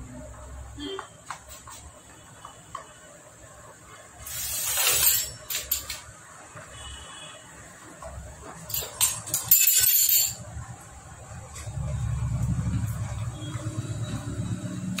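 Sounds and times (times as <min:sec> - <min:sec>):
loud hiss: 0:04.2 - 0:05.3.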